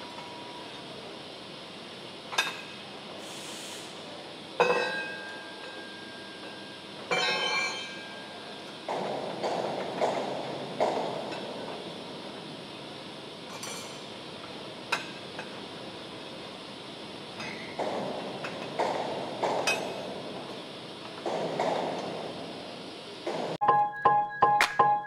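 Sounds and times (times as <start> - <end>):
workshop noise: 7.0 - 12.4, 17.3 - 25.0
piano music: 23.6 - 25.0.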